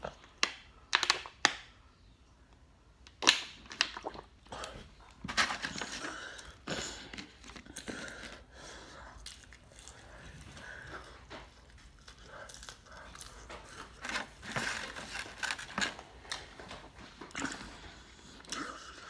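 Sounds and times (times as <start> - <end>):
chewing and crunching food: 3.1 - 19.0
foam box crinkling: 5.2 - 6.2, 13.7 - 17.0.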